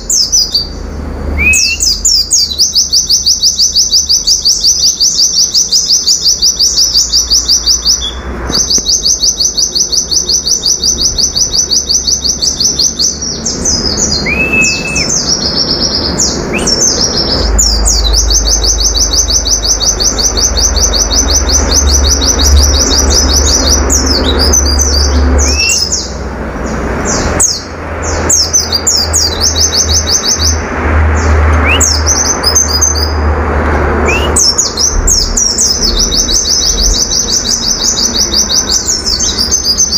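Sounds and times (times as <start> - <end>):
bird singing rapid notes: 0.0 - 33.3, 33.9 - 39.9
low rumble: 30.6 - 39.4.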